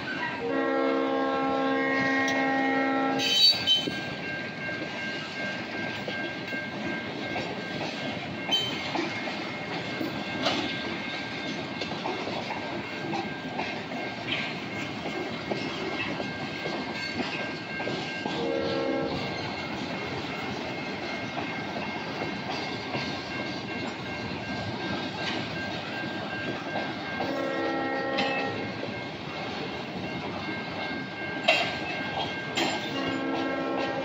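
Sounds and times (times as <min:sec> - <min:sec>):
freight train rumbling past: 0:00.0 - 0:34.0
locomotive air horn: 0:00.4 - 0:03.6, 0:18.4 - 0:19.2, 0:27.3 - 0:28.6, 0:33.0 - 0:34.0.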